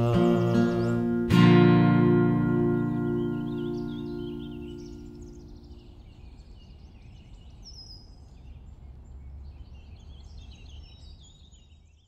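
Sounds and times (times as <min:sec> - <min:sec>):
birds chirping and trilling: 0:00.0 - 0:12.0.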